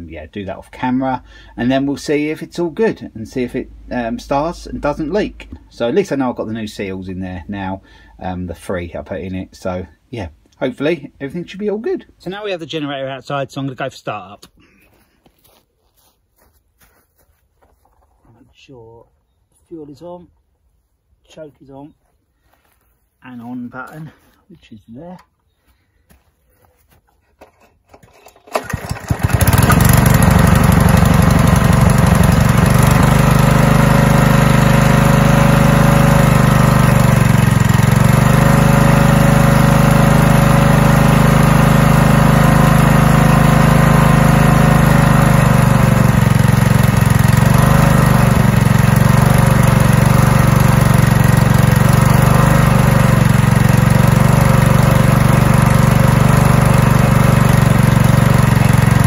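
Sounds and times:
generator engine running: 0.0s - 8.3s, 27.4s - 59.0s
engine pull-start: 27.3s - 59.0s.

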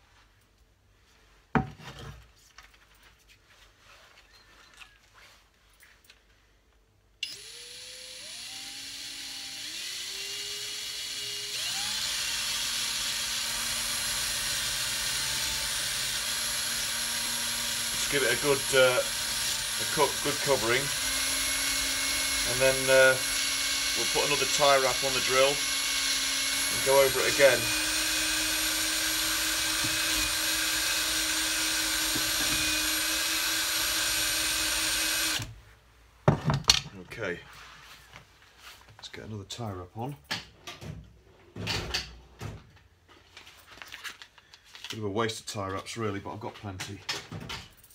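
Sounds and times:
cordless drill motor whine: 7.2s - 35.5s.

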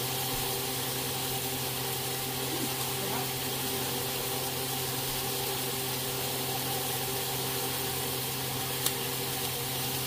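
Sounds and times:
small fan humming: 0.0s - 10.0s.

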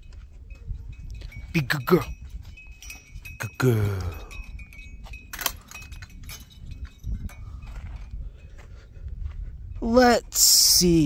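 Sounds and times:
metal bell clinking and ringing: 0.0s - 8.6s.

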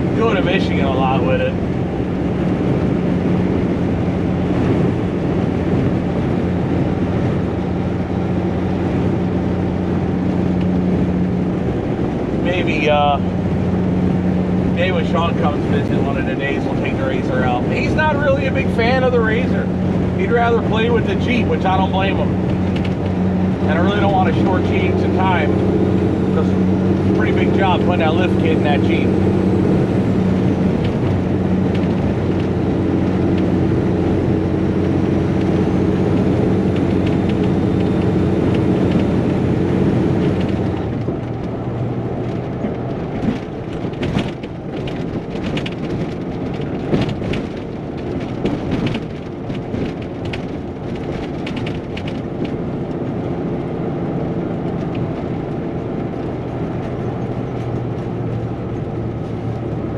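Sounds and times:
diesel truck engine running: 0.0s - 59.9s
sharp clicks and knocks: 20.6s - 59.8s.

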